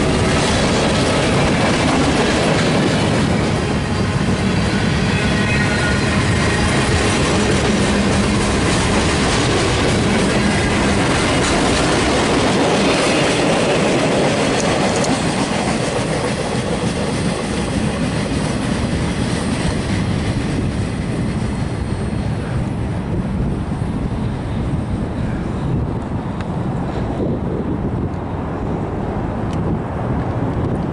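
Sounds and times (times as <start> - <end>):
steel wheels clattering on rails: 0.0 - 22.4
freight train rolling past: 0.0 - 30.9
high wheel squeal: 3.9 - 6.9.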